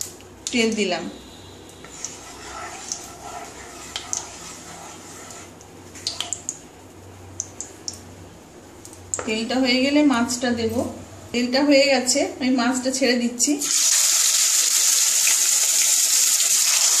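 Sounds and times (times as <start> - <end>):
spatula swirling in pan: 1.8 - 6.2
oil crackling and popping: 13.6 - 17.0.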